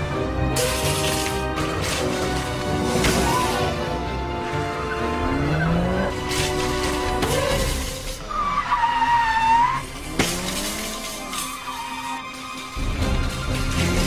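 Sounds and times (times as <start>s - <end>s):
music: 0.0s - 14.0s
tyres squealing: 4.7s - 12.8s.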